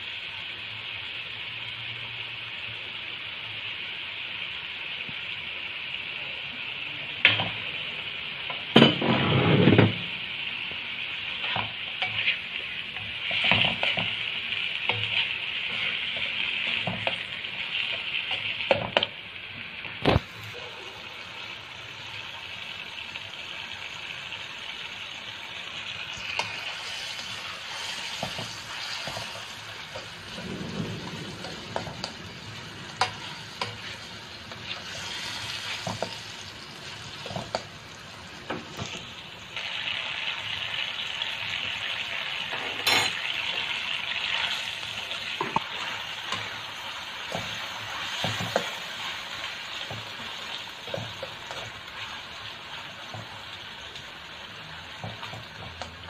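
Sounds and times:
vegetables sizzling in a wok: 0.0 - 56.0
spatula scraping pan: 11.3 - 14.3, 14.9 - 17.3, 26.2 - 30.4.

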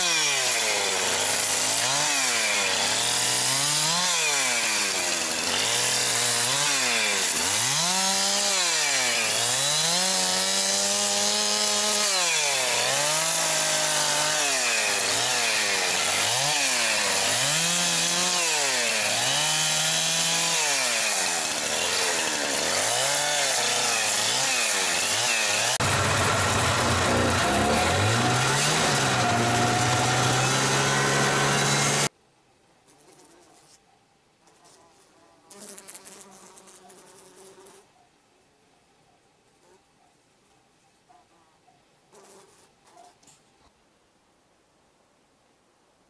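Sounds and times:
chainsaw revving into cuts: 0.0 - 32.1.

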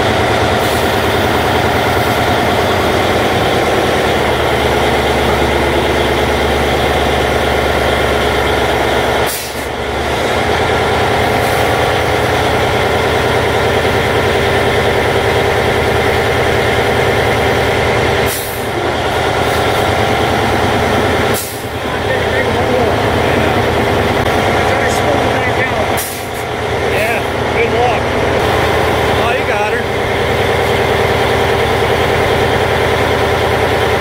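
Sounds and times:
diesel engine running under load: 0.0 - 34.0
air hissing: 9.2 - 9.8, 18.2 - 19.9, 20.5 - 21.8, 25.9 - 27.4.

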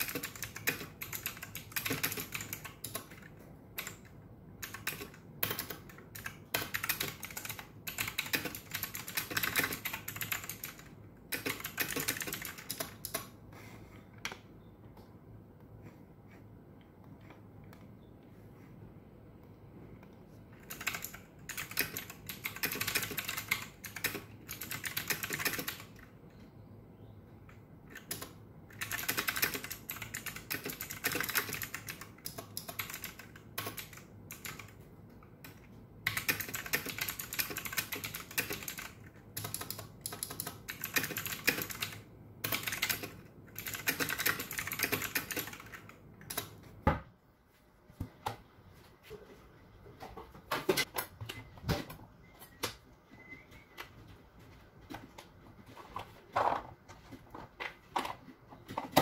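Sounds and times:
fast typing on keyboard: 0.0 - 13.4, 20.6 - 26.2, 27.9 - 34.8, 35.4 - 46.6.

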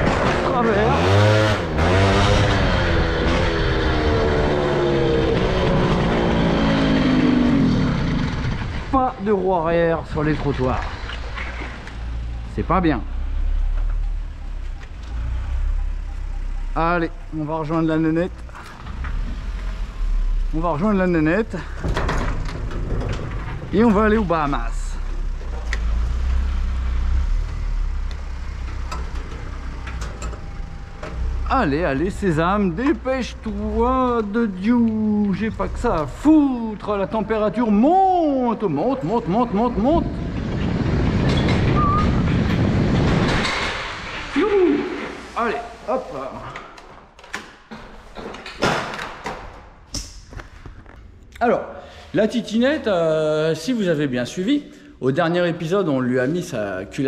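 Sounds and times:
moped engine at high revs: 0.3 - 8.9.

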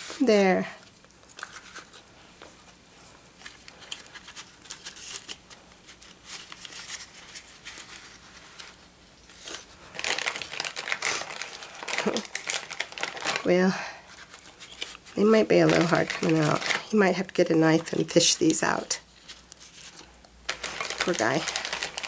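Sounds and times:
foil wrappers crinkling: 0.0 - 22.0
plastic bag rustling: 0.0 - 22.0
taps and rustles of paper card: 14.2 - 22.0.

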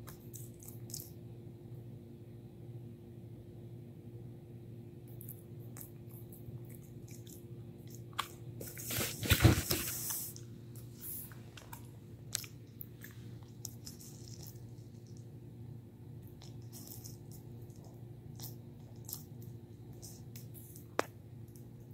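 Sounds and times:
puppy gnawing a chew stick: 10.7 - 15.3, 16.2 - 21.7.

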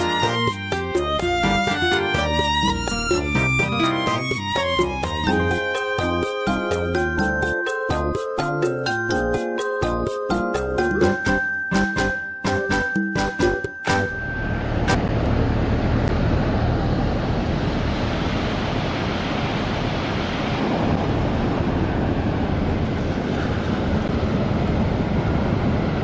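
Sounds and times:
light tune: 0.0 - 16.1.

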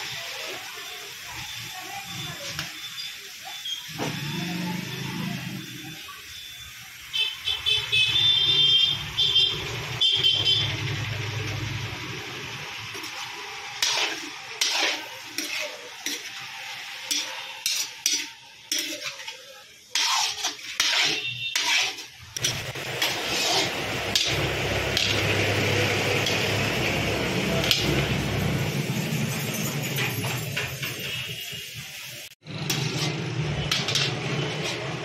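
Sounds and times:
frying hiss: 0.0 - 35.0
spatula strokes: 12.9 - 28.6, 32.4 - 35.0
spoon scraping and clinking on pan: 13.8 - 16.4, 17.0 - 25.3.

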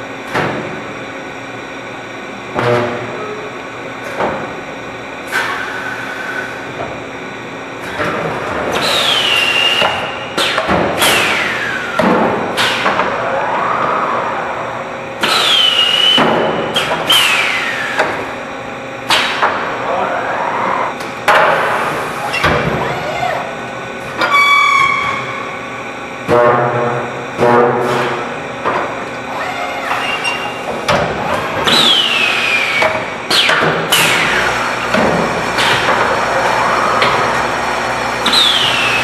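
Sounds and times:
machinery clanks and thuds: 0.2 - 0.9, 2.5 - 3.2, 7.8 - 13.2, 15.2 - 18.4, 21.0 - 22.9, 26.2 - 29.1, 29.8 - 32.0, 32.7 - 37.6
falling whines: 13.1 - 18.1, 31.6 - 33.5, 38.2 - 39.0.

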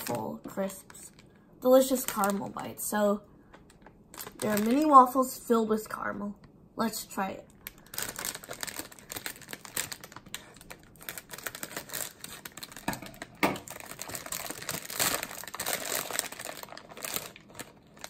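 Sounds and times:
plastic bag crackling and rustling: 1.8 - 2.7, 4.2 - 5.2, 7.6 - 18.0
scissors cutting plastic bag: 7.7 - 18.0.

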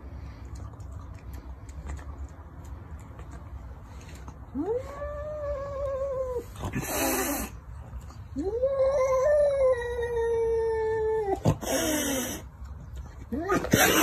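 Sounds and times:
cat hissing: 6.7 - 7.6, 11.5 - 12.5.

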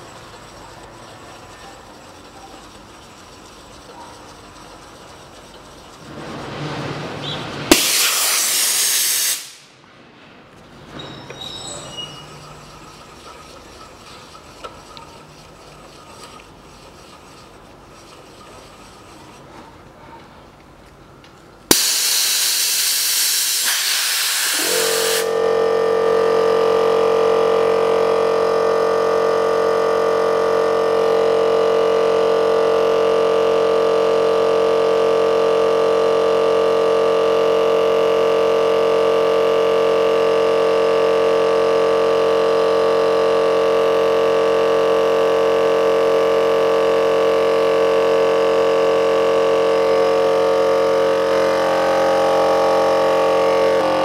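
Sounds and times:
air compressor motor running: 0.0 - 54.0
compressed air hissing: 7.2 - 9.7, 21.7 - 25.3.

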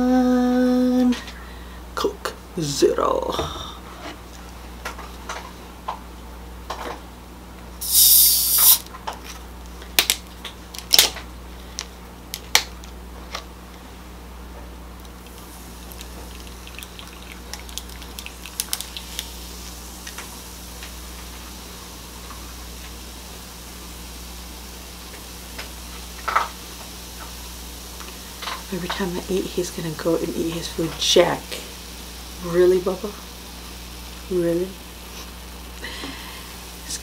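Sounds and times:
soda pouring over ice: 7.8 - 8.8, 15.0 - 19.8
bottle cap hiss: 7.8 - 8.9
soda fizzing: 7.8 - 8.9, 15.0 - 24.2.

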